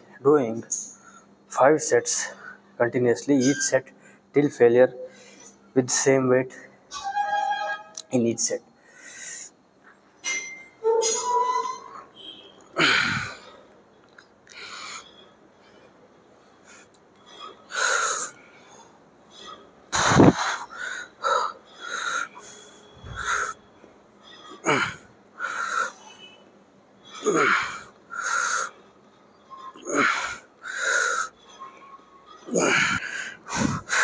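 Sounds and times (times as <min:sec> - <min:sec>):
man breathing forcefully: 0:12.8 - 0:13.7, 0:17.7 - 0:18.8, 0:19.9 - 0:23.6, 0:24.6 - 0:26.0, 0:29.9 - 0:31.4, 0:32.6 - 0:34.0.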